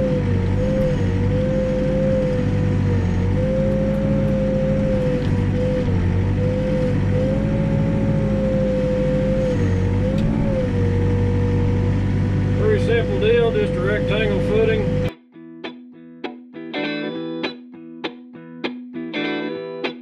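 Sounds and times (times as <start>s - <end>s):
backhoe diesel engine running: 0.0s - 15.1s.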